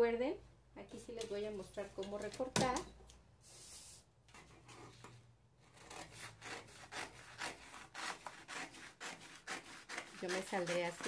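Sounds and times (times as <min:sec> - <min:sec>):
scissors snipping paper: 0:05.8 - 0:11.0.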